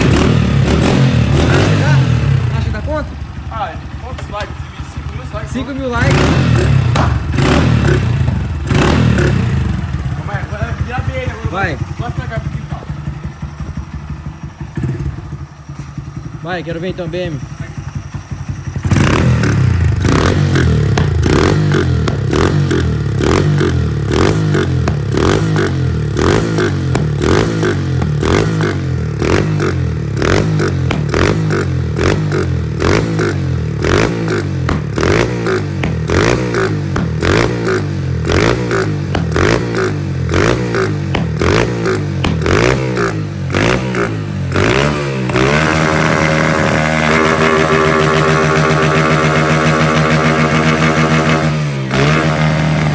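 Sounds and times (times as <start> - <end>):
motorcycle engine revving: 0.0 - 52.9
exhaust pops: 6.1 - 9.5, 20.8 - 22.6, 30.7 - 31.4, 34.0 - 42.9.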